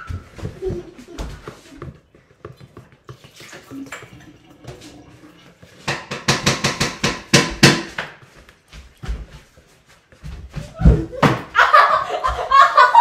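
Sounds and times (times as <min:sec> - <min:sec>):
kitchenware clattering: 0:05.8 - 0:08.2.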